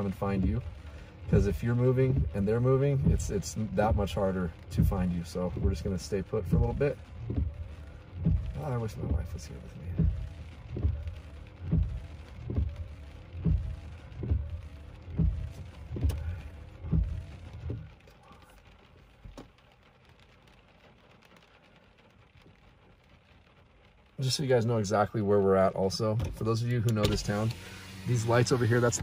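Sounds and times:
low thumping: 0.0s - 18.0s.

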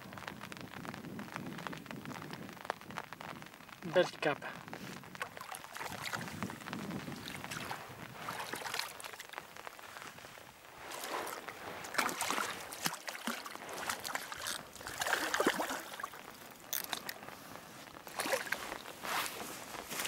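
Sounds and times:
rain falling: 0.0s - 20.0s
splashing at water's edge: 5.2s - 9.4s, 10.8s - 17.1s, 18.1s - 18.8s.

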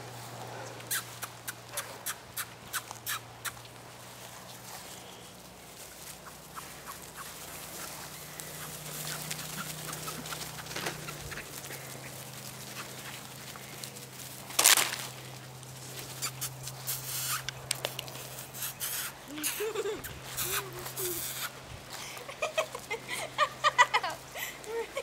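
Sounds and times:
light ticks and rustling in grass: 0.0s - 25.0s.

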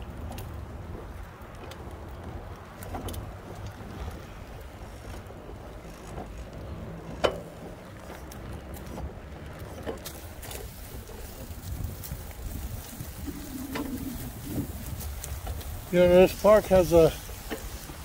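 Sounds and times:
low rumble of ride over pavement: 0.0s - 18.0s
wind on microphone: 8.4s - 18.0s.

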